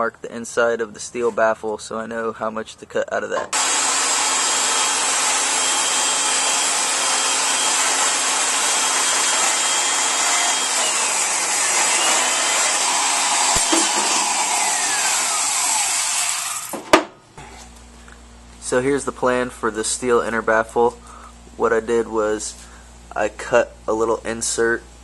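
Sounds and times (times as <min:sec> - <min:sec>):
band saw cutting steel: 0:03.5 - 0:16.8.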